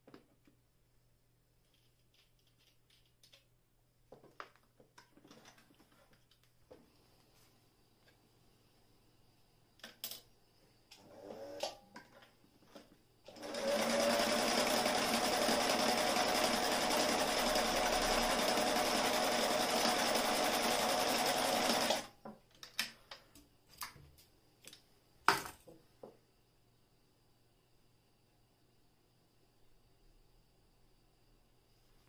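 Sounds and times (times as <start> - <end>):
sewing machine running: 13.3 - 22.1.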